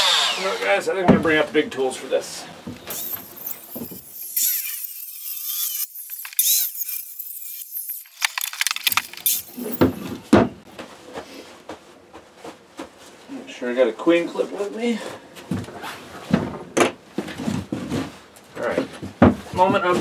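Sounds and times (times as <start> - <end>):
circular saw cutting plywood: 0.0 - 0.8, 2.9 - 8.2
sharp knocks and clatters: 18.9 - 20.0.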